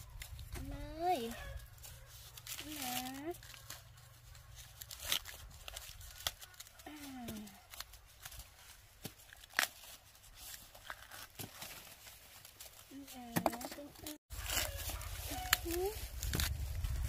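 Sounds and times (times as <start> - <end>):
corn husks tearing: 0.0 - 17.0.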